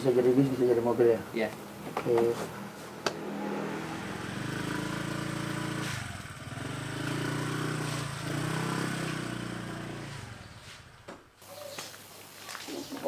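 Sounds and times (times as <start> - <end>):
scooter engine running: 3.2 - 11.1.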